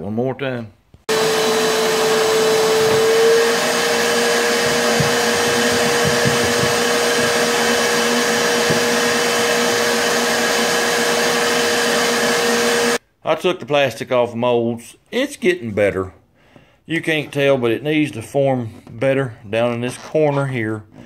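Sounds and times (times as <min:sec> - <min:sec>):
shop vac running: 0:01.1 - 0:13.0.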